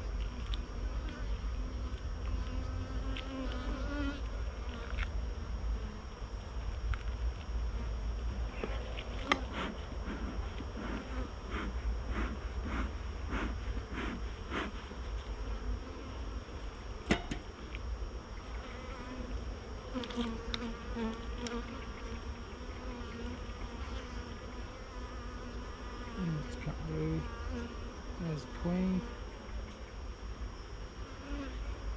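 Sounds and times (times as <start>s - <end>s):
honeybees buzzing: 0.0s - 31.9s
bee buzzing close by: 0.3s - 6.2s, 7.7s - 17.0s, 18.2s - 31.9s
sharp knocks: 17.1s - 17.5s.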